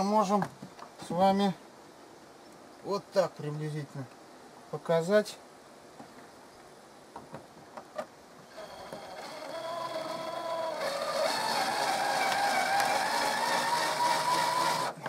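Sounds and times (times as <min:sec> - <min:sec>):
drill motor whining: 0:08.4 - 0:15.0.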